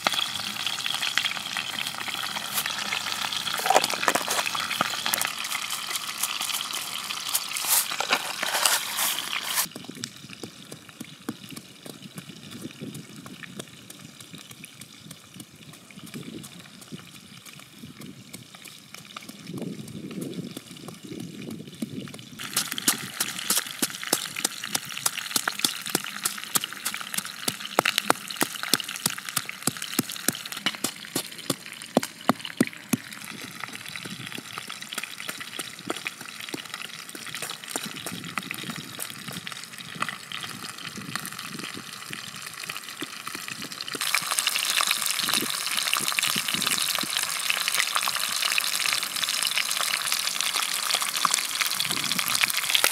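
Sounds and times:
fish frying in oil: 0.0 - 52.9
hiss with crackles and pops: 0.0 - 52.9
pestle pounding in wooden mortar: 9.7 - 17.0, 18.0 - 39.6.

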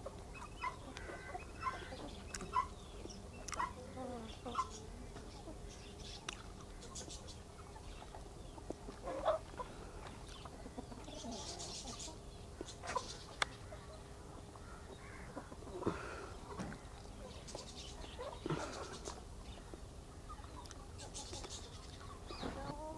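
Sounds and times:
chickens clucking: 0.0 - 22.9.

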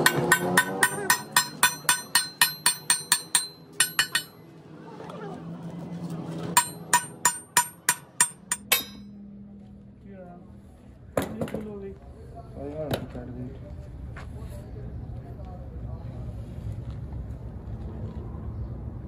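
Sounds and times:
hammer striking metal: 0.0 - 4.4, 6.6 - 9.2.

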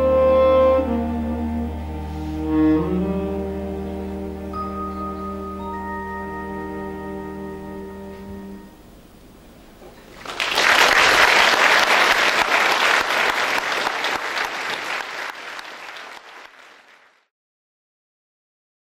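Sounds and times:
audience applauding: 10.0 - 17.3.

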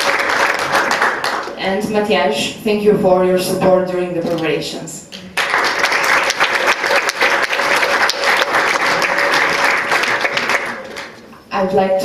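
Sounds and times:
audience applauding: 0.0 - 1.6, 5.3 - 11.3.

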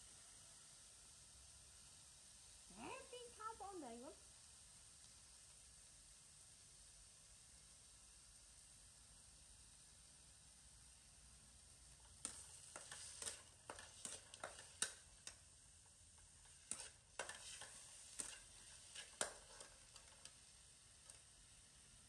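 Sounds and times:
utensil scraping steel pan: 12.2 - 15.4, 16.4 - 20.3.

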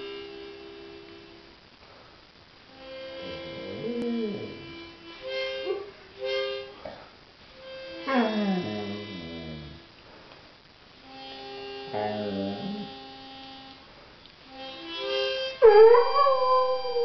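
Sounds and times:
instrumental chords: 2.7 - 6.9, 7.5 - 9.9, 14.5 - 17.0
dog howling: 3.4 - 4.8, 11.9 - 13.0, 15.6 - 17.0.

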